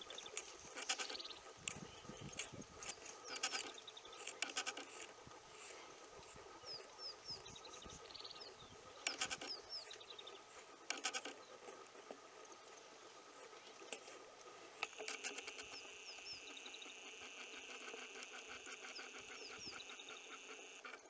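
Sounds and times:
animal chattering calls: 14.8s - 21.0s.

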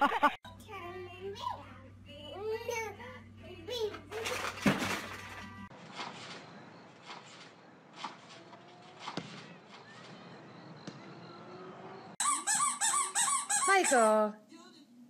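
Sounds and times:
loud squeaky sound: 12.2s - 14.1s.

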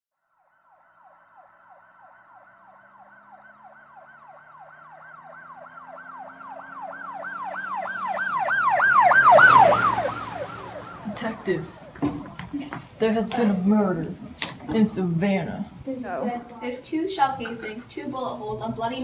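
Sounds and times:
emergency siren yelping: 0.4s - 12.0s.

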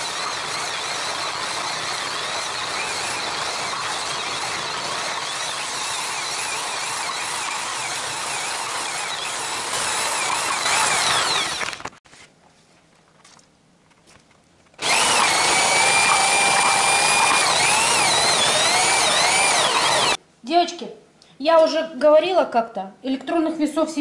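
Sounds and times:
electric meat grinder whine: 0.0s - 11.9s, 14.8s - 20.2s.

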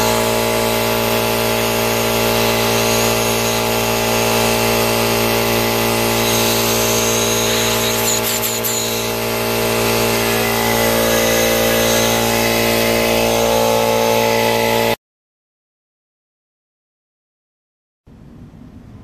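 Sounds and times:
air blowing from hose: 0.0s - 15.0s
air compressor running: 0.0s - 15.0s.

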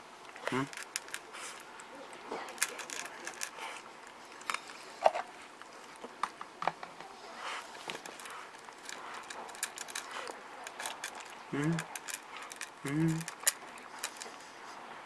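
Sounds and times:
cat crunching dry kibble: 0.2s - 6.2s, 7.6s - 14.6s
kibble clicking in metal bowl: 2.4s - 3.6s, 7.9s - 14.3s.

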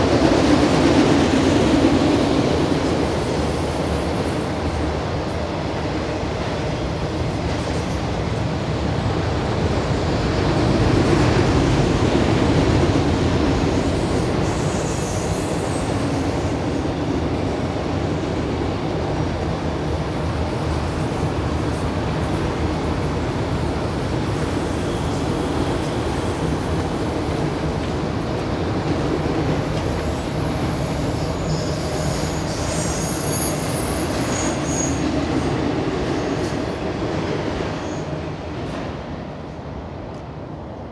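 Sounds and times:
train wheels rumbling on rail: 0.0s - 40.9s
high wheel squeals: 30.0s - 35.2s.

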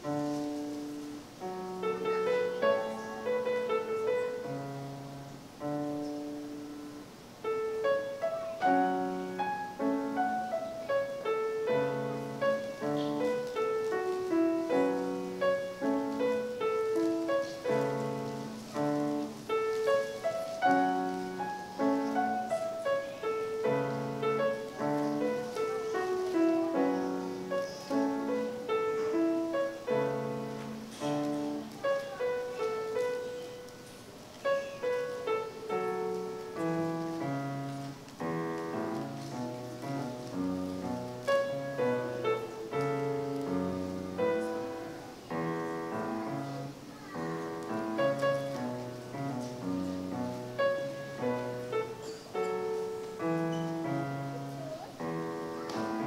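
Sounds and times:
grand piano playing: 0.0s - 56.0s.

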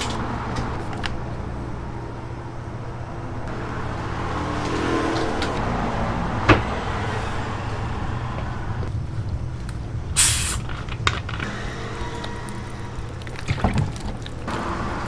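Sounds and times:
steady low hum: 5.6s - 15.0s
soda bottle gas hissing: 10.2s - 10.8s.

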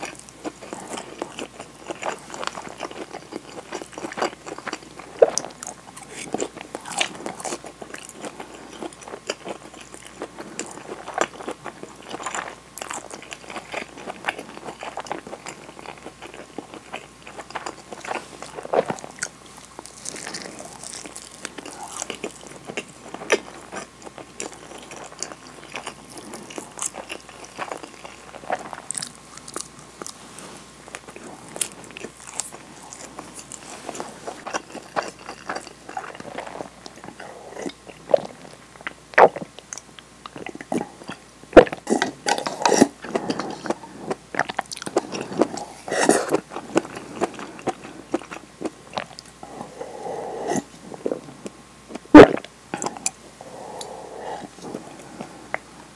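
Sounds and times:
chewing with wet mouth clicks: 0.0s - 30.1s, 30.9s - 49.4s
sipping and swallowing soup: 52.2s - 55.7s.

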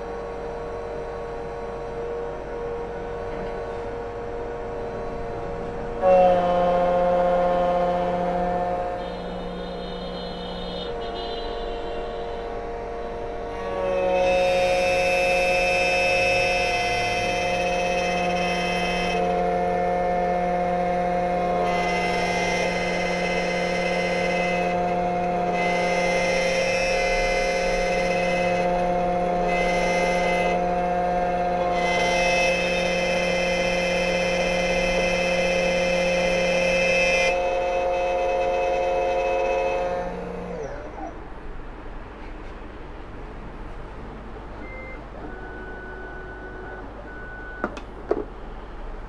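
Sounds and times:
key cutting machine whine: 0.1s - 11.4s, 12.0s - 41.1s
key cutting machine whining: 20.8s - 36.6s.

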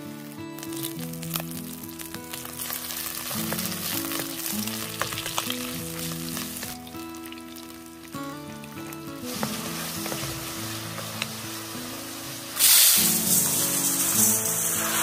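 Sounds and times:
meat sizzling in a wok: 0.0s - 15.0s
soft background music: 0.0s - 15.0s.

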